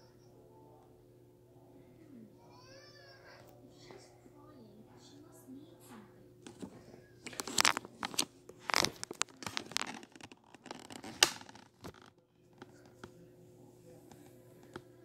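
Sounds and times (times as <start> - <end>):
rustling and scratching: 6.4 - 13.2.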